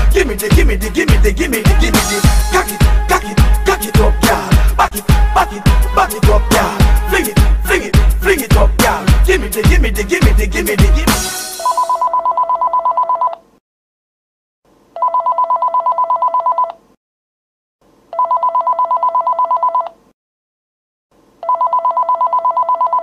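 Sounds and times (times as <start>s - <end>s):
telephone ringing electronic trill: 11.6s - 13.3s, 21.4s - 23.0s.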